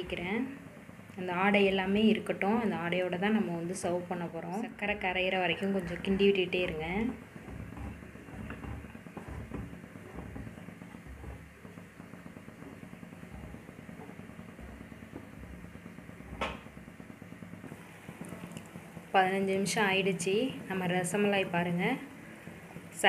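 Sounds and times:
low steady rumble: 0:00.0 - 0:23.0
wooden spatula stirring in pan: 0:04.9 - 0:19.1.

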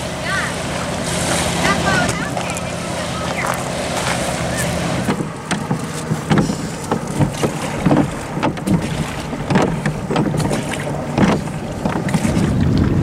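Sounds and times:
oars rowing: 0:00.0 - 0:13.0
wind rushing on microphone: 0:07.3 - 0:13.0.

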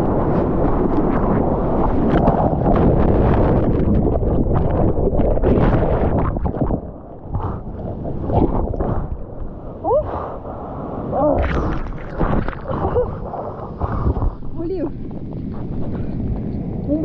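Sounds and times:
rush of churning water: 0:00.0 - 0:16.3
underwater gurgling: 0:00.0 - 0:16.8
water splash: 0:01.3 - 0:09.6, 0:11.1 - 0:14.6
rising bubble sounds: 0:01.9 - 0:09.8, 0:11.2 - 0:16.1.

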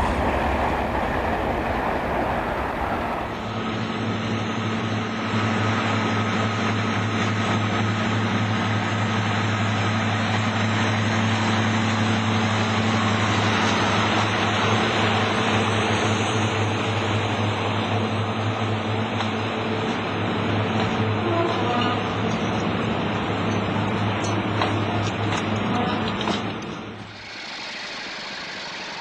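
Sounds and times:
mechanical drone: 0:00.0 - 0:05.0, 0:27.0 - 0:29.0.

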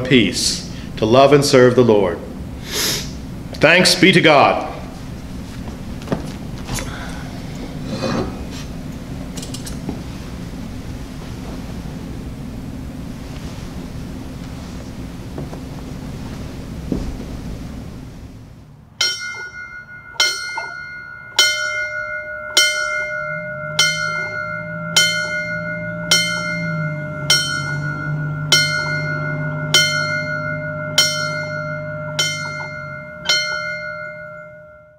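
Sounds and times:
low hum: 0:04.6 - 0:34.9
church bell tolling: 0:19.0 - 0:34.9.

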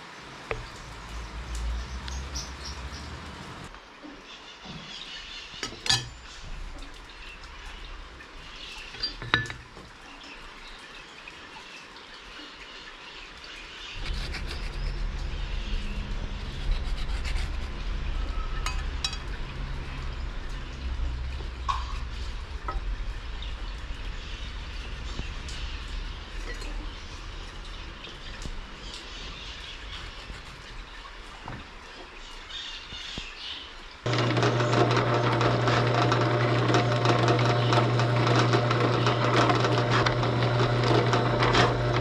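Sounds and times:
birds chirping: 0:00.0 - 0:34.0
low steady rumble: 0:14.0 - 0:29.9.

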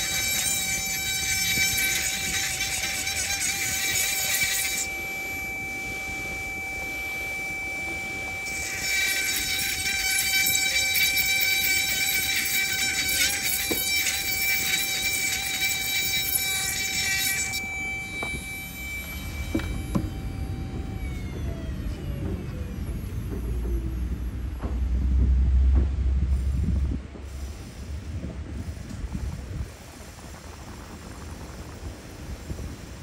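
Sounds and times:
bit grinding bead squeal: 0:00.0 - 0:23.2
rotary tool motor whine: 0:00.0 - 0:24.6.

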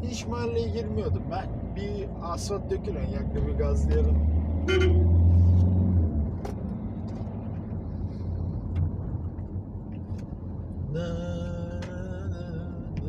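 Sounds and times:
diesel engine pulling hard: 0:00.0 - 0:09.4.

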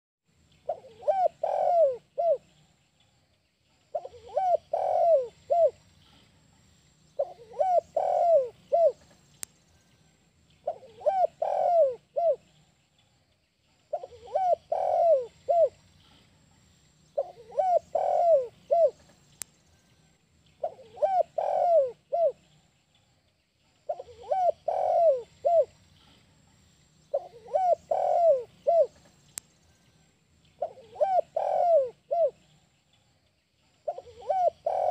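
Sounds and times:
dove cooing: 0:00.6 - 0:02.5, 0:03.9 - 0:05.8, 0:07.2 - 0:09.1, 0:10.6 - 0:12.5, 0:13.9 - 0:15.8, 0:17.2 - 0:19.1, 0:20.6 - 0:22.4, 0:23.9 - 0:25.8, 0:27.1 - 0:29.1, 0:30.6 - 0:32.4, 0:33.8 - 0:34.9.

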